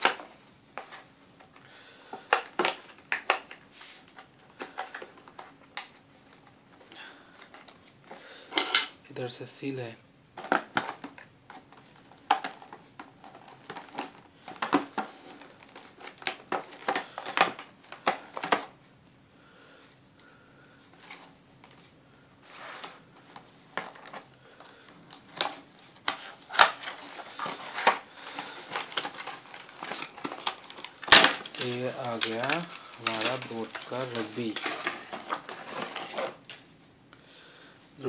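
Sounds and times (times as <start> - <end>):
plastic crinkling: 10.4 - 18.8, 20.9 - 36.7.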